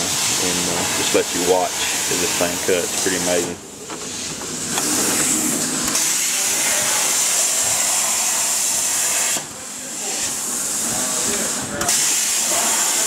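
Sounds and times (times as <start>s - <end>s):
plasma torch hissing: 4.2s - 13.0s.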